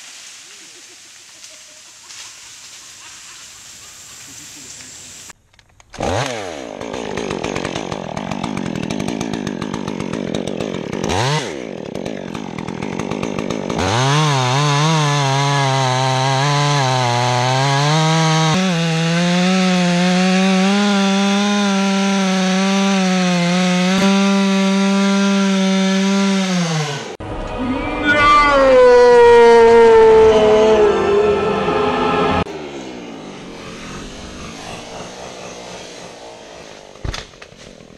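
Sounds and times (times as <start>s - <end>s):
chainsaw cutting wood: 5.8s - 27.2s, 32.4s - 37.9s.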